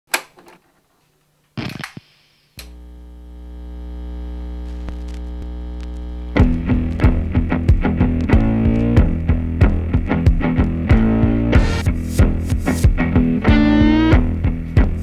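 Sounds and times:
record scratchy noise: 1.4 - 15.0
turntable click: 1.6 - 2.8.

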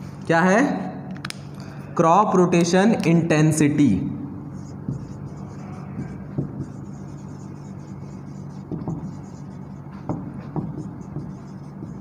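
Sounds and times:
steady low hum: 0.0 - 12.0
marker pen writing on whiteboard: 4.5 - 12.0.

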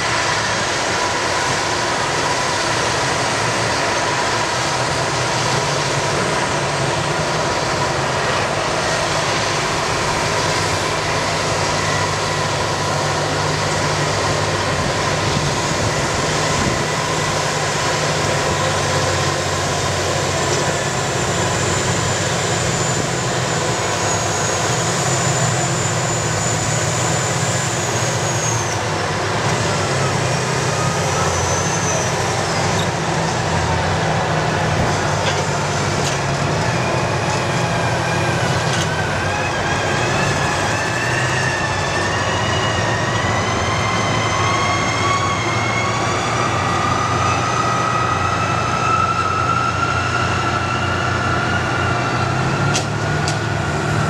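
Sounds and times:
diesel engines droning under load: 0.0 - 54.0.

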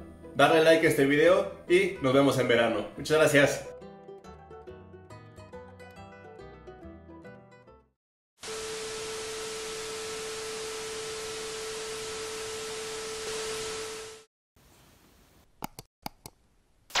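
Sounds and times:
static hiss: 8.4 - 14.3.

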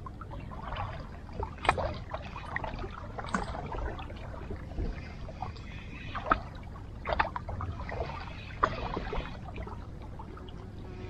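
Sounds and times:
small waves lapping: 0.0 - 11.0
steady low rumble: 0.0 - 11.0.

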